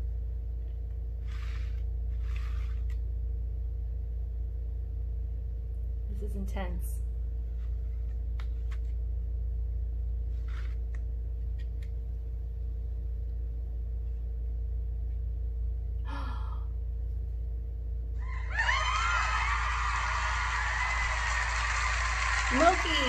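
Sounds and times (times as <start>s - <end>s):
steady low hum: 0.0s - 23.0s
voices: 22.4s - 23.0s.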